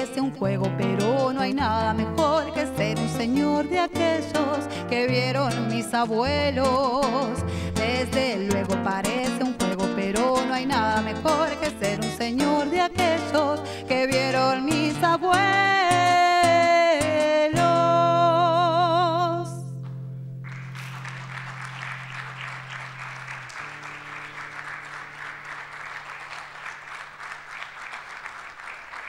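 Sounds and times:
woman singing: 0.0s - 19.8s
acoustic guitar: 0.0s - 27.2s
audience applause: 20.4s - 29.0s.

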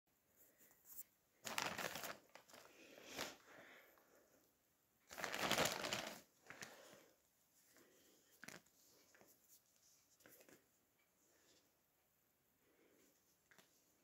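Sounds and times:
plastic wrapping crinkling: 1.4s - 3.4s, 5.1s - 6.7s.

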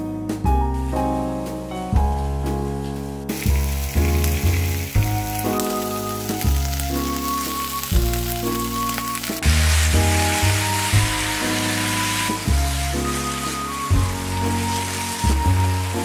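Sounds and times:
background music: 0.0s - 16.0s
cabbage sizzling in a frying pan: 3.3s - 16.0s.

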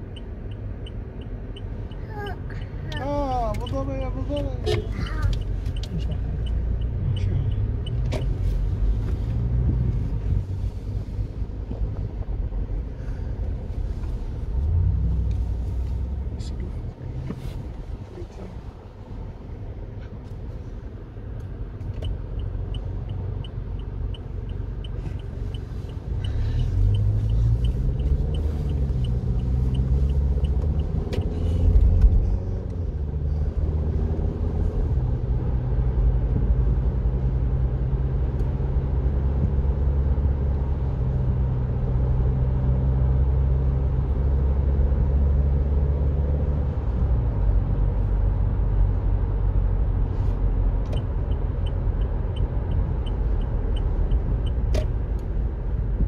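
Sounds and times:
car engine accelerating: 0.0s - 56.0s
road rumble: 0.0s - 56.0s.

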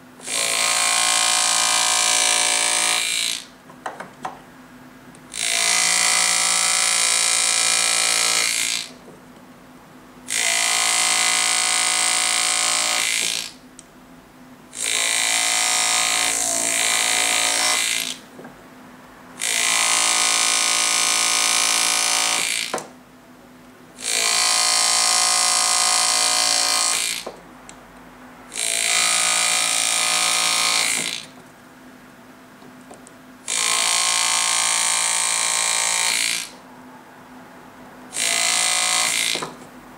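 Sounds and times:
pneumatic engraving tool buzzing: 0.2s - 3.5s, 5.3s - 9.0s, 10.3s - 13.6s, 14.8s - 18.2s, 19.4s - 22.8s, 24.0s - 27.3s, 28.5s - 31.4s, 33.5s - 36.6s, 38.1s - 39.6s.

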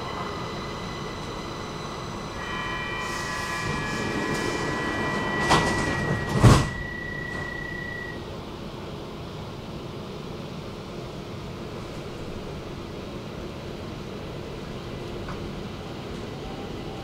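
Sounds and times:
high steady whine: 0.0s - 8.5s
metro train rumble: 0.0s - 17.0s.

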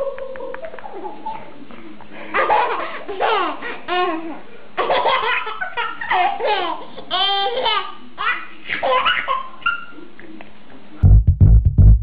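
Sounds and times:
baby laughing: 2.3s - 10.0s.

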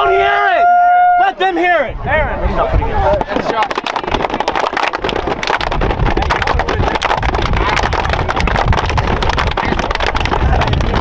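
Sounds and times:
players clapping: 3.3s - 11.0s.

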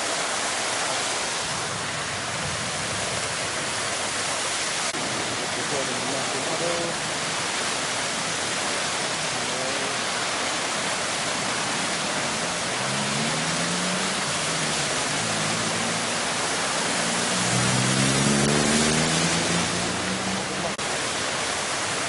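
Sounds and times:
rushing floodwater: 0.0s - 22.0s.

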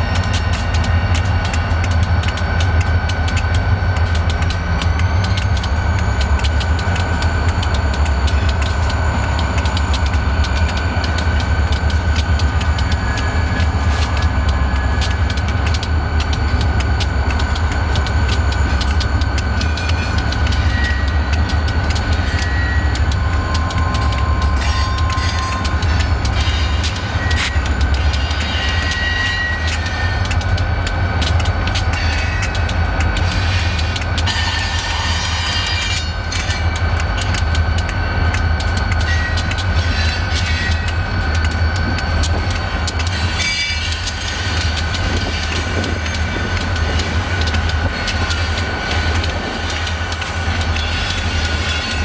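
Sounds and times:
diesel locomotives idling: 0.0s - 52.0s
wheels clicking over rail joints: 0.0s - 52.0s
high wheel squeals: 19.4s - 21.6s, 22.2s - 30.2s.

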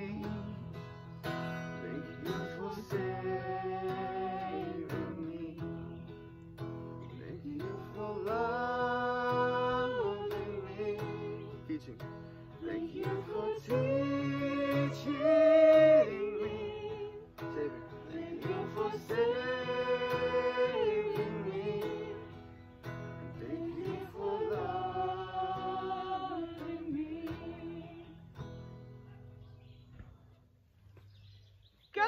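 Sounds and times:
strummed acoustic guitar: 0.0s - 29.4s
person singing worship song: 1.8s - 6.1s, 7.2s - 11.7s, 12.6s - 22.5s, 23.2s - 28.2s.

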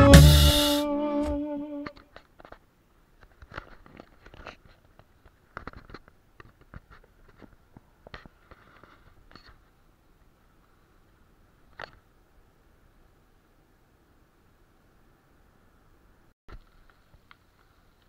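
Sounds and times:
song: 0.0s - 2.0s.

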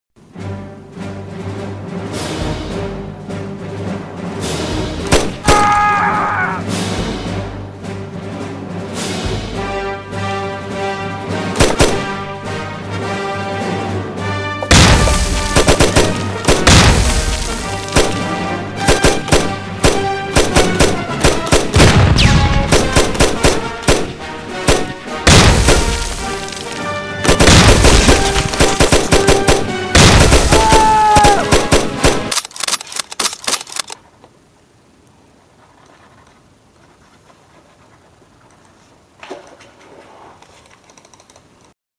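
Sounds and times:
dramatic music: 0.2s - 32.4s
machine-gun fire bursts: 11.6s - 12.2s, 14.7s - 26.6s, 27.2s - 32.4s.

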